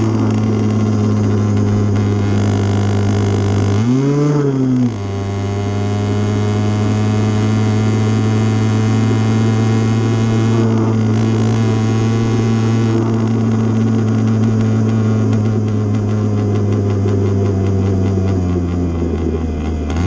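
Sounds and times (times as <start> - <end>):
motorbike engine running: 0.0 - 20.0.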